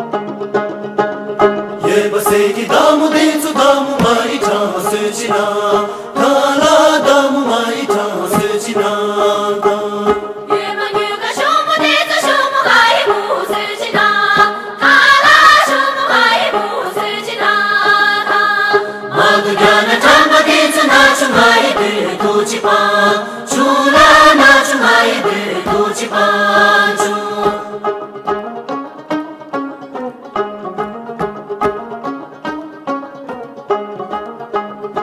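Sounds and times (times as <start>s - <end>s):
group of voices singing: 1.8s - 28.0s.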